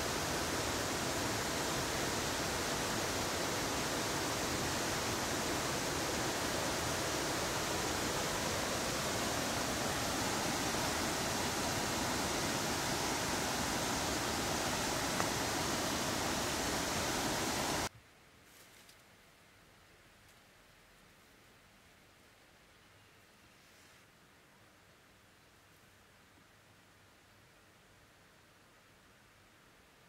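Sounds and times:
steady rushing noise: 0.0s - 17.9s.

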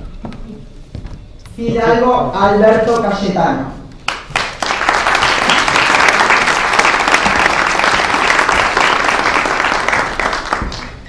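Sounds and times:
audience applauding: 4.0s - 11.0s.

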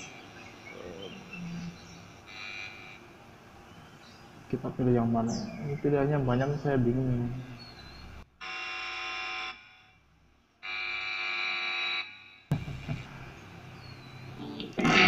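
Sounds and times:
electrical buzz through amp: 1.8s - 3.4s, 10.6s - 15.0s.

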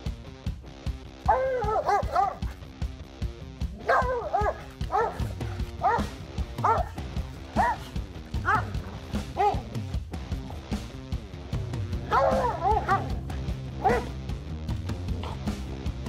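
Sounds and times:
background music: 0.0s - 16.0s
dog barking and yipping: 1.2s - 2.6s, 3.7s - 9.8s, 12.0s - 14.2s.

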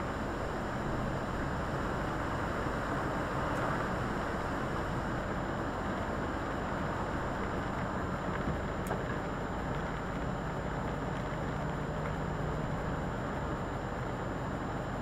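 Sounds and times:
tyres hissing on wet road: 1.2s - 5.8s.

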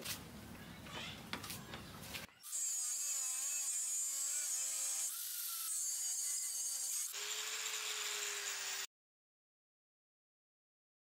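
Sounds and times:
angle grinder cutting steel: 2.4s - 8.9s.

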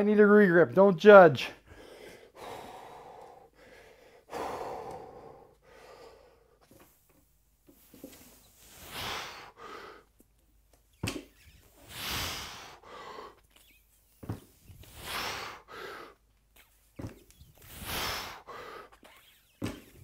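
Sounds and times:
man breathing hard: 1.6s - 6.9s, 8.6s - 10.2s, 11.8s - 13.6s, 14.8s - 16.3s, 17.6s - 19.0s.

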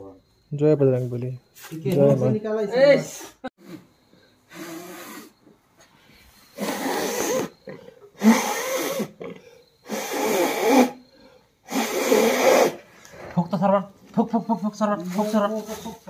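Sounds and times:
breathy blowing blasts: 3.6s - 13.3s.

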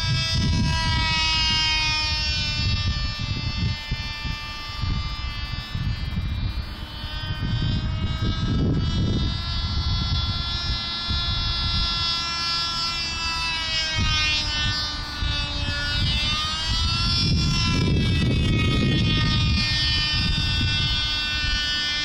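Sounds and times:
model airplane engine buzzing: 0.0s - 22.0s
wind rumble on microphone: 0.0s - 22.0s.

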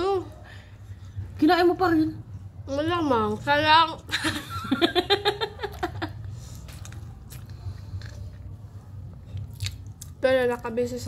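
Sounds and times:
chewing: 6.3s - 10.2s.

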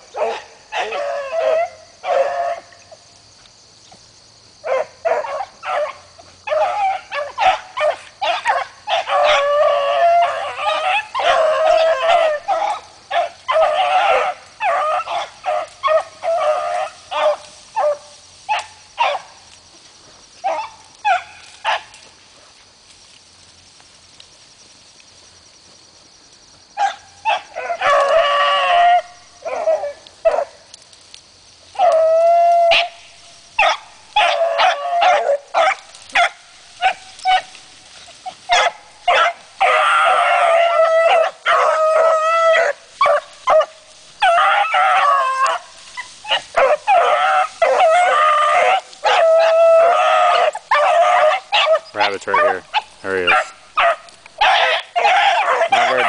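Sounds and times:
dogs baying: 4.6s - 19.4s, 33.6s - 56.0s.

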